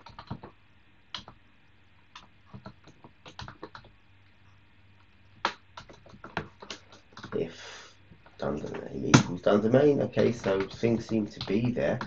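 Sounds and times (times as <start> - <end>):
keyboard keystrokes clicking: 10.2 - 12.0.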